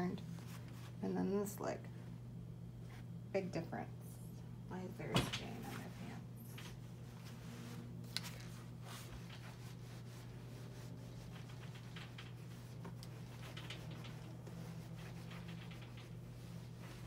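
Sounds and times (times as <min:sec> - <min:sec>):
low room hum: 0:00.0 - 0:17.0
faint rustling and taps: 0:11.1 - 0:17.0.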